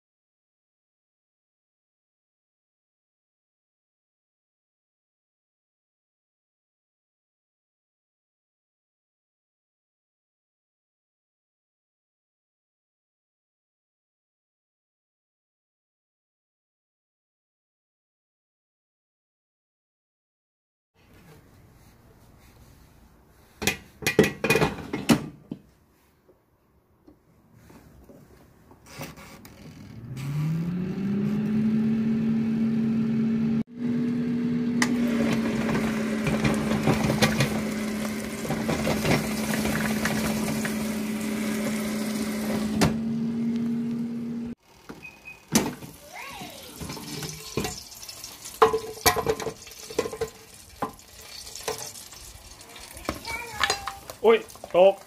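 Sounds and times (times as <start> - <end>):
air fryer fan hum: 30.4 - 46.0.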